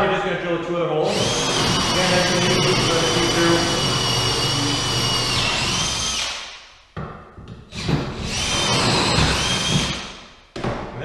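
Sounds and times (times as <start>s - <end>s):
electric drill whining: 1.0s - 6.5s, 7.7s - 10.1s.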